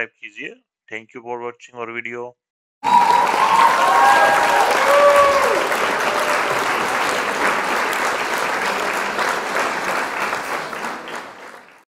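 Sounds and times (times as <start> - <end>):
applause: 2.8 - 11.9.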